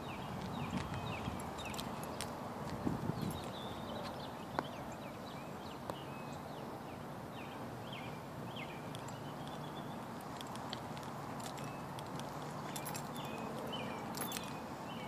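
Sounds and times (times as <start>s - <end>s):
outdoor background noise: 0.0s - 15.0s
footsteps on gravel: 0.2s - 4.3s, 10.1s - 14.7s.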